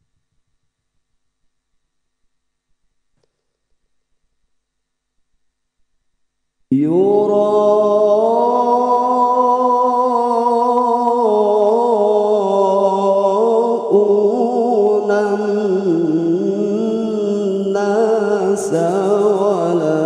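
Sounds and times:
man chanting recitation: 0:06.7 - 0:20.0.

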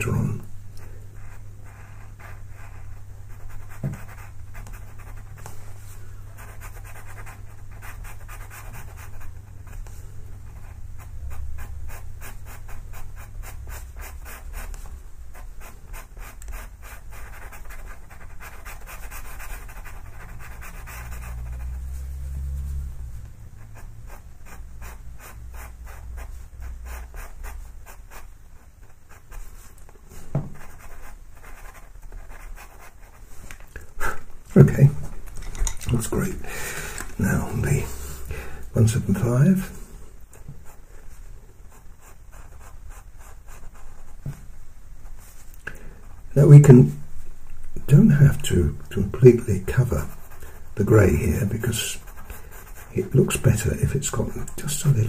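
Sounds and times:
pencil scratching on paper: 0:01.2 - 0:05.6, 0:06.4 - 0:22.9, 0:23.7 - 0:33.3, 0:41.7 - 0:44.4, 0:49.6 - 0:54.3
low hum: 0:19.7 - 0:26.7.

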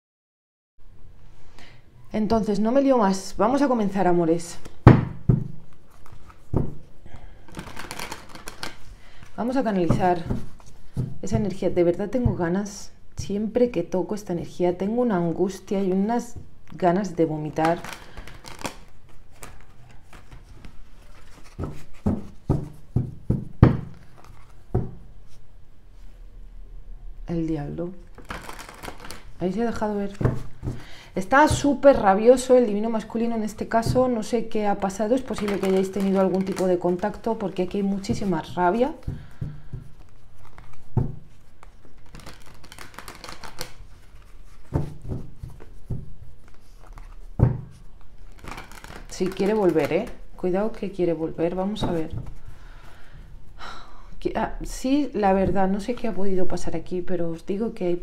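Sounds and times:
cards being shuffled: 0:04.6 - 0:06.9, 0:07.5 - 0:11.2, 0:17.5 - 0:25.4, 0:28.1 - 0:30.9, 0:34.8 - 0:50.2
deck knocking on table: 0:21.6 - 0:24.0.

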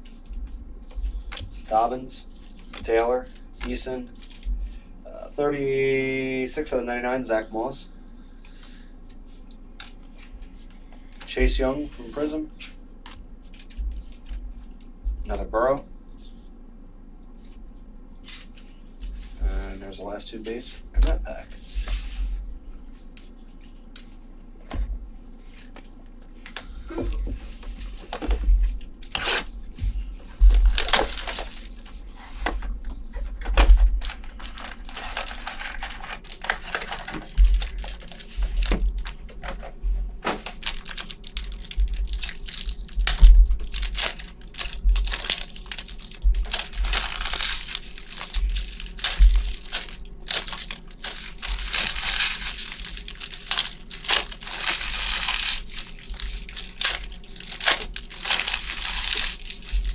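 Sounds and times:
wrappers crinkling: 0:00.0 - 0:04.8, 0:27.0 - 0:39.6, 0:40.2 - 0:59.9
card packs torn open: 0:30.6 - 0:31.9, 0:33.5 - 0:39.2, 0:40.3 - 0:59.9.

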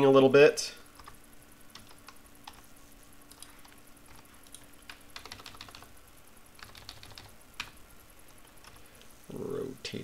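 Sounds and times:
faint steady hum: 0:00.0 - 0:10.0
keyboard keys clicking: 0:01.0 - 0:02.6, 0:03.3 - 0:05.9, 0:06.6 - 0:07.8.

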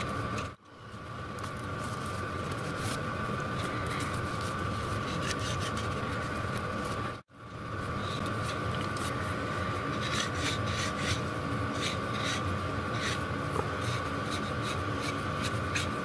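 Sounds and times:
steady hum: 0:00.0 - 0:16.0.

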